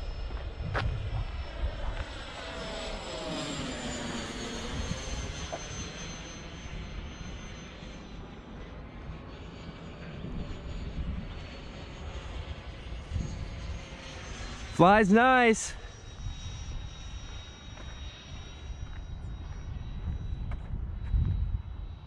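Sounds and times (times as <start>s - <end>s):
wind rumble on microphone: 0.0s - 2.2s, 10.1s - 11.6s, 12.8s - 13.9s, 16.2s - 22.0s
model jet fan whining: 0.0s - 22.0s.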